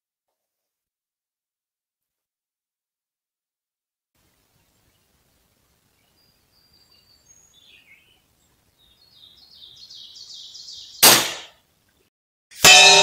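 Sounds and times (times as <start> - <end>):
birds chirping: 4.4 - 11.0
rifle shot: 11.0 - 11.6.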